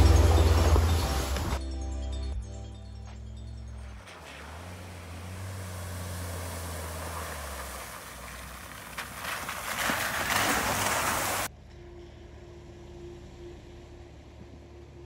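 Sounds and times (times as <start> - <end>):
water splashing off tyres: 3.8 - 11.5.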